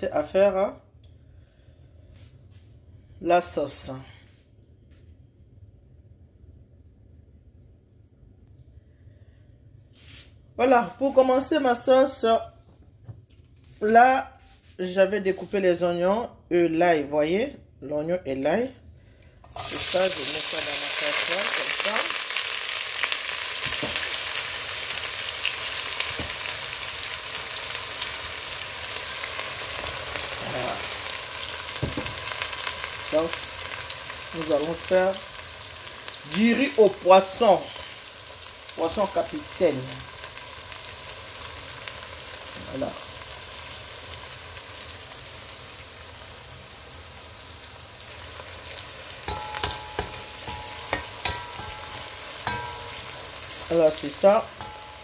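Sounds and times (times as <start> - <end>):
onion sizzling in hot oil: 19.4 - 55.0
onion pieces dropping into oil: 19.5 - 27.0, 27.7 - 34.3, 48.2 - 55.0
wooden spoon clinking on pot: 49.3 - 53.8, 54.5 - 55.0.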